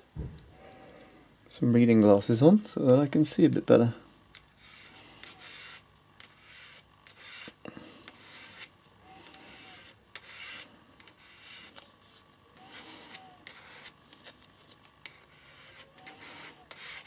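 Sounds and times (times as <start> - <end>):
card scraping metal stencil: 4.3 - 17.0.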